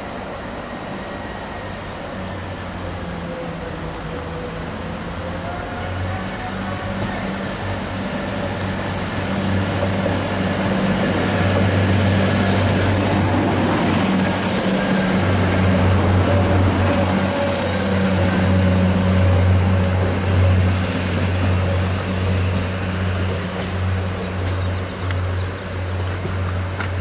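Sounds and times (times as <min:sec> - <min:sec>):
train rushing hiss: 0:00.0 - 0:26.8
train diesel engine hum: 0:00.0 - 0:27.0.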